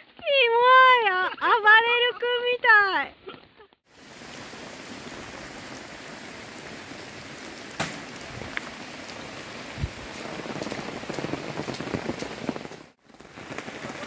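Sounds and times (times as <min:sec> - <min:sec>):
steady rain falling: 0:03.9 - 0:14.0.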